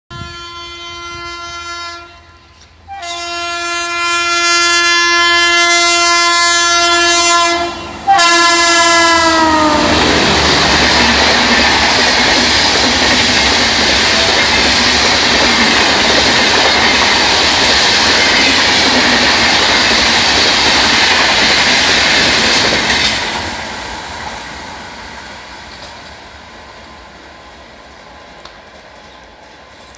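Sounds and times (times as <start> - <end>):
locomotive air horn blasts: 0.1 - 10.2
train wheels rattling on rails: 9.0 - 27.0.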